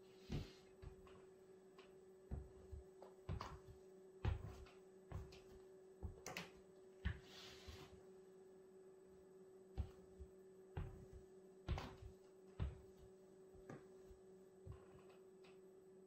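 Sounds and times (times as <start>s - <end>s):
footsteps on wood floor: 0.2s - 1.2s, 2.3s - 6.2s, 9.8s - 14.0s.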